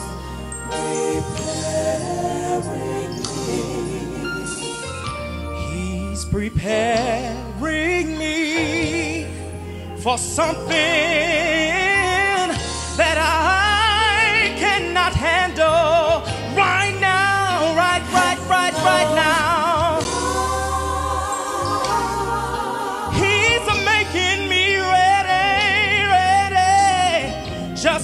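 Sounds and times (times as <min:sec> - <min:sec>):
man singing gospel: 0:00.7 - 0:05.0, 0:05.6 - 0:28.0
band accompaniment: 0:08.6 - 0:28.0.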